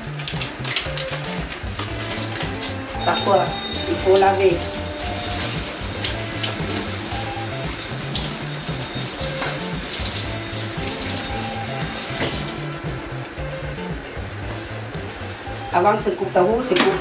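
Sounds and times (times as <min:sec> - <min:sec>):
tap water running into sink: 0:00.0 - 0:13.0.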